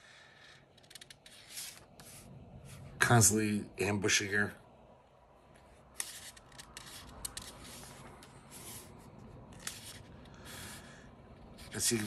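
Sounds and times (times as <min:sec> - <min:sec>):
book pages rustling: 0:00.8 - 0:02.9, 0:05.5 - 0:12.0.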